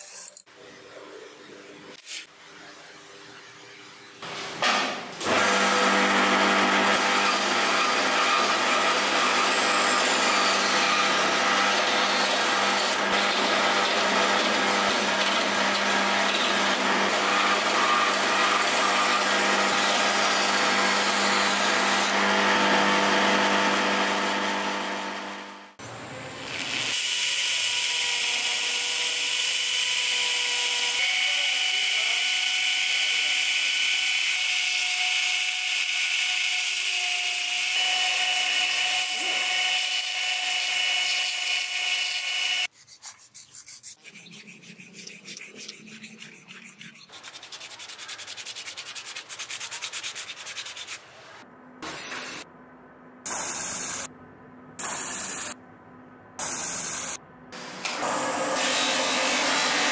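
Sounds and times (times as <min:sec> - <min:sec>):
belt grinder grinding wood: 0:05.2 - 0:25.4, 0:26.9 - 0:51.0
rhythmic rubbing: 0:42.8 - 0:51.0.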